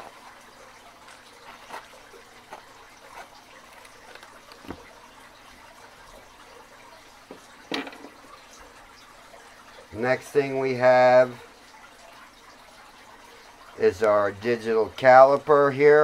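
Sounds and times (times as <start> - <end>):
tool case knocking on bench: 7.7 - 8.2.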